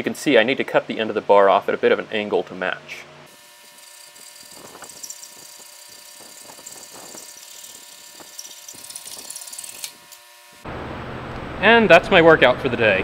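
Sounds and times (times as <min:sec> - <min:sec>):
hacksaw cutting steel: 0:03.3 - 0:10.6.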